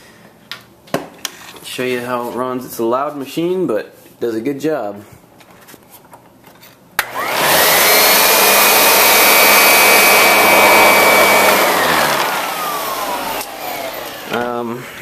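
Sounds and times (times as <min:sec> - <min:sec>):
vacuum cleaner motor whining: 0:07.0 - 0:14.6.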